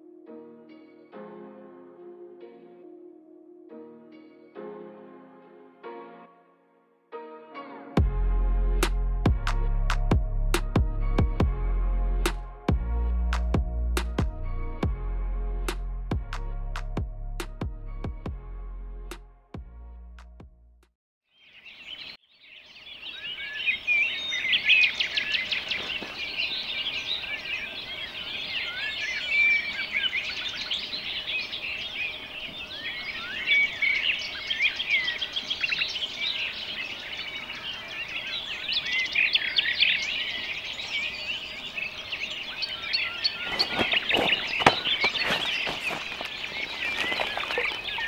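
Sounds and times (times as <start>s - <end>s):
songbirds singing: 21.3s - 48.0s.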